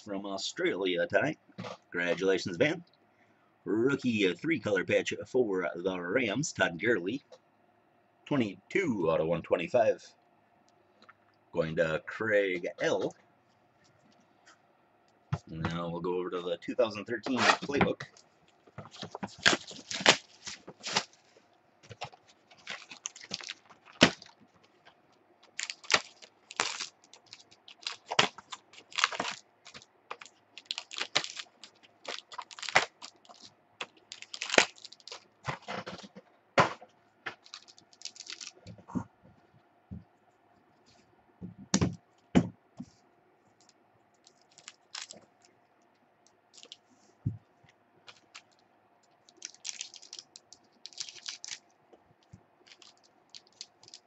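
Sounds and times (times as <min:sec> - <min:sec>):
wrappers tearing and crinkling: 0:18.5 - 0:35.8, 0:37.4 - 0:38.7, 0:44.2 - 0:45.2, 0:46.5 - 0:46.8, 0:49.2 - 0:51.6, 0:52.6 - 0:54.0.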